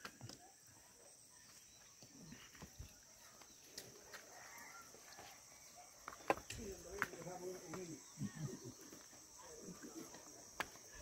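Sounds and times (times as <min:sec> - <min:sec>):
footsteps on stone path: 0:01.4 - 0:11.0.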